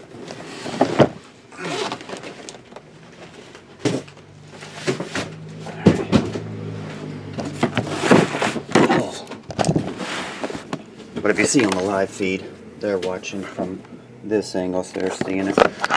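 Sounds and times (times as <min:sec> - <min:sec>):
cardboard rustling: 0:00.0 - 0:06.5, 0:07.4 - 0:12.4
cardboard boxes knocking: 0:04.8 - 0:06.5.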